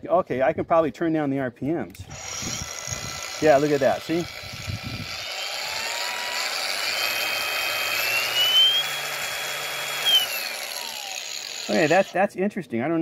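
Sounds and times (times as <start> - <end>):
angle grinder motor whine: 2.0 - 12.2.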